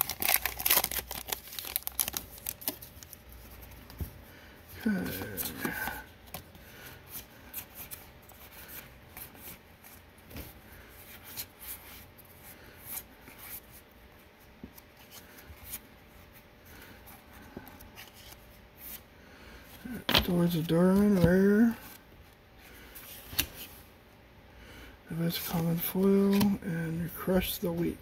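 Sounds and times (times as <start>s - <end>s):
cards snapping and rustling: 0.0s - 3.2s.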